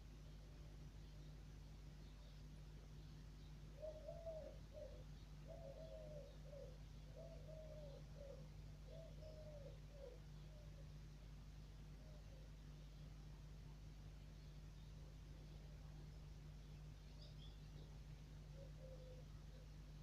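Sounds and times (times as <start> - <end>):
steady low hum: 0.0 - 20.0
dove cooing: 3.8 - 10.7, 18.5 - 19.6.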